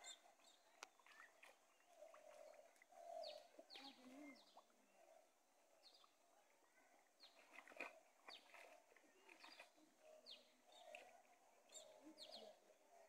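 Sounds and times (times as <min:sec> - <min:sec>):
small birds chirping: 0:00.0 - 0:04.7, 0:07.2 - 0:12.6.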